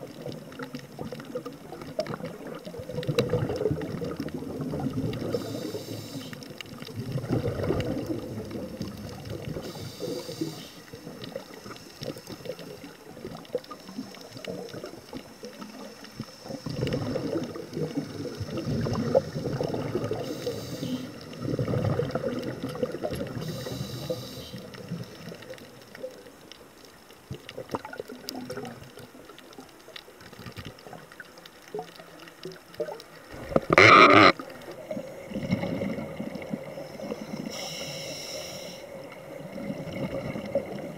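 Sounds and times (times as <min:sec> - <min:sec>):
exhaled air bubbling underwater: 0:00.0 - 0:40.9
regulator inhalation hiss: 0:05.2 - 0:06.5, 0:09.6 - 0:12.9, 0:15.3 - 0:17.0, 0:18.1 - 0:21.3, 0:23.3 - 0:25.3, 0:36.8 - 0:39.0.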